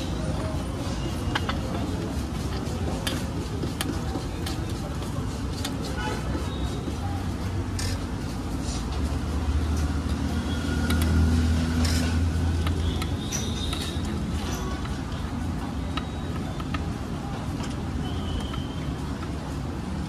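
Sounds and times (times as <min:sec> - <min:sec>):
low traffic hum: 0:00.0 - 0:20.0.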